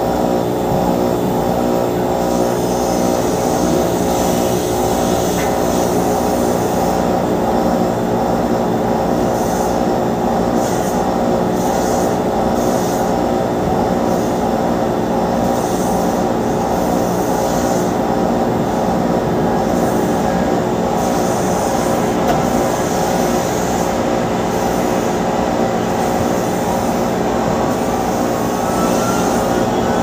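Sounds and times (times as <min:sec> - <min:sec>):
towing tug engine: 0:16.3 - 0:30.0
airliner turbines whining: 0:18.0 - 0:30.0.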